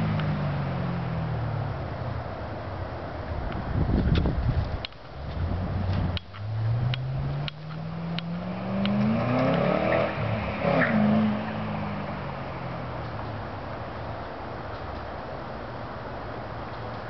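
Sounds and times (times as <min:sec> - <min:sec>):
car exhaust accelerating: 0:03.6 - 0:14.7.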